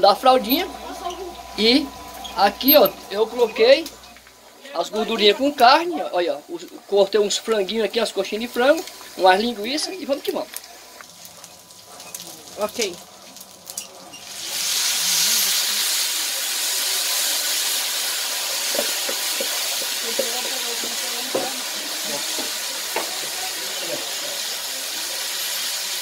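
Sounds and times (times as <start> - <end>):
wooden spoon stirring pan: 0.0 - 4.7, 18.6 - 23.8
vegetables sizzling in hot fat: 0.0 - 26.0.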